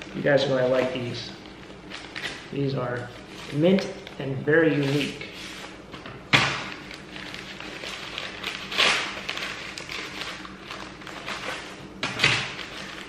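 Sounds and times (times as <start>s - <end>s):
paper wrapping rustling and crinkling: 0.0s - 5.8s, 6.5s - 13.0s
loud paper crackle: 6.4s - 13.0s.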